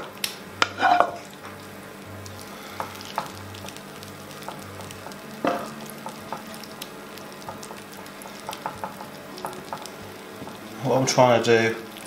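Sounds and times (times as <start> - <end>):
wooden spoon scraping a pan: 0.6 - 1.3.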